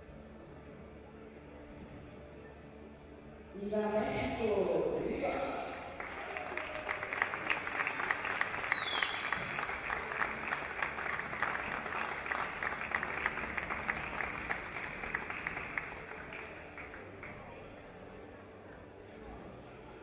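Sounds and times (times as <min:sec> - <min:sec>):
crowd clapping: 0:05.3 - 0:17.7.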